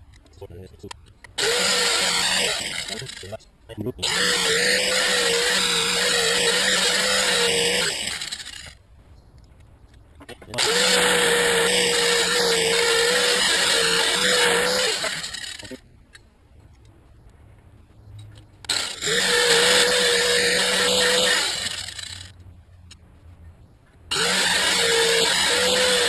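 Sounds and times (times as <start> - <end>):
angle grinder grinding metal: 1.3 - 3.4, 4.0 - 8.8, 10.6 - 15.8, 18.7 - 22.4, 24.1 - 26.0.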